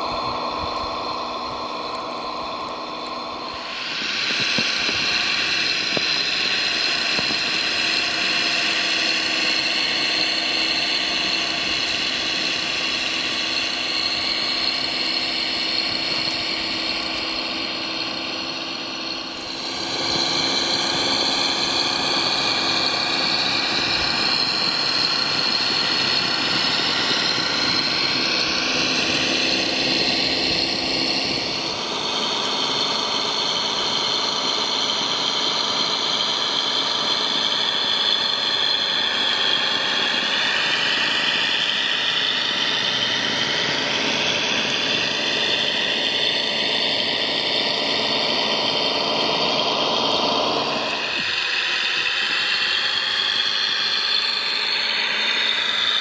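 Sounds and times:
model tractor motor whine: 0:00.0 - 0:56.0.

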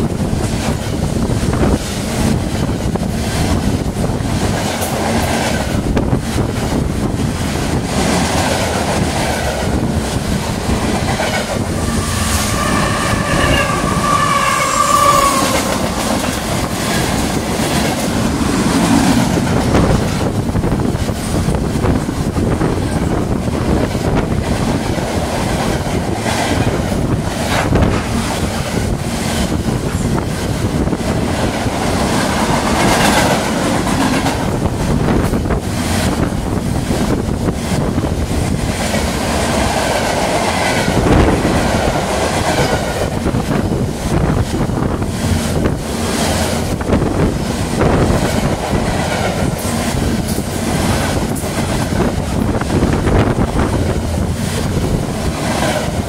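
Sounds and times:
freight train wheels on rails: 0:00.0 - 0:56.0
rail-joint clicks: 0:00.0 - 0:56.0.

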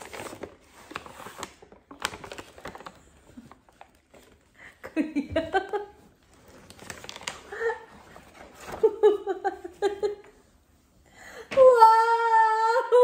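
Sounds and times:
paper gift bag rustling: 0:00.0 - 0:04.6, 0:05.5 - 0:10.2
woman laughing: 0:04.7 - 0:06.1, 0:08.6 - 0:10.4.

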